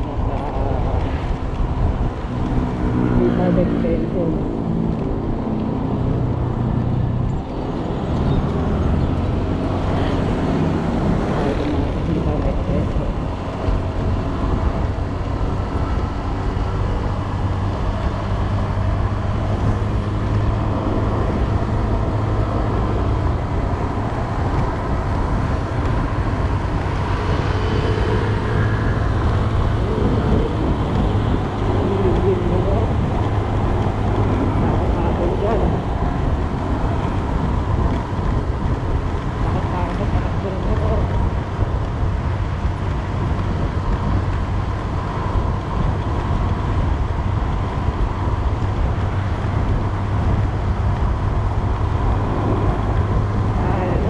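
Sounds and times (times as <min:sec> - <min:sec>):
wind and road noise: 0:00.0 - 0:54.0.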